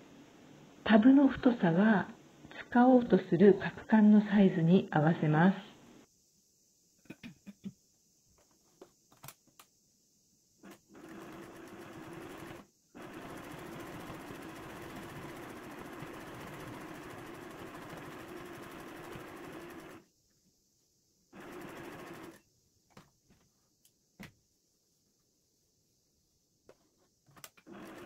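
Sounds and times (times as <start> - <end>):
sewing machine stitching: 10.6 - 20.0, 21.4 - 22.4, 27.5 - 28.0.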